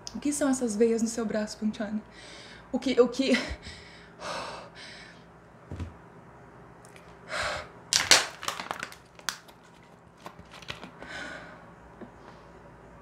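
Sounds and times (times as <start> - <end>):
plastic bottle crinkling and clicking: 7.9 - 11.0.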